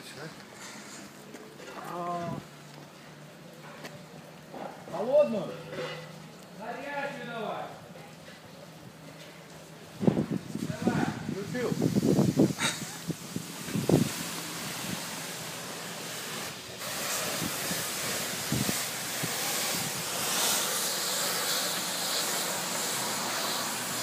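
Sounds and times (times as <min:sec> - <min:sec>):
pressure wand spraying foam: 0:10.7 - 0:24.0.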